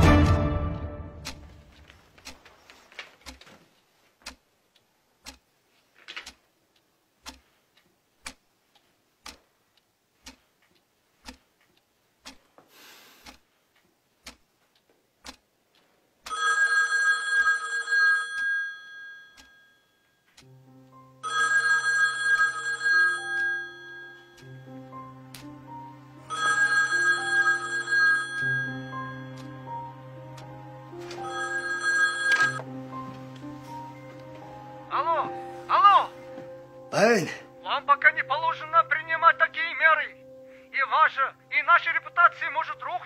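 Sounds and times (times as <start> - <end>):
clock ticking: 1.0 - 19.7, 20.3 - 33.6, 34.2 - 43.0
telephone ringing: 16.3 - 20.3, 21.2 - 24.4, 26.3 - 29.8, 31.0 - 32.7.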